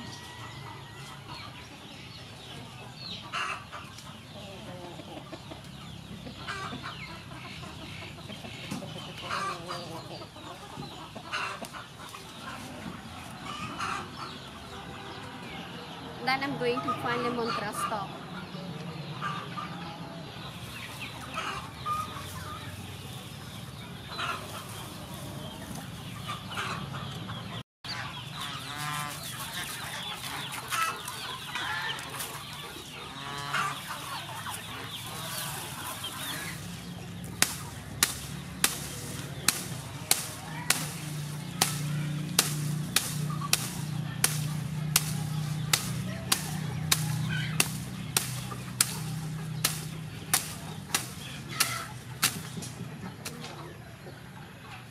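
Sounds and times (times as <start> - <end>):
chickens clucking: 0.0 - 54.9
knife cutting stalks: 35.0 - 53.4.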